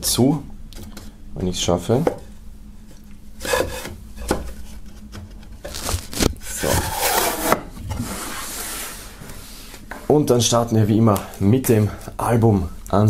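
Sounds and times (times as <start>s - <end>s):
wood scraping on wood: 3.4s - 10.1s.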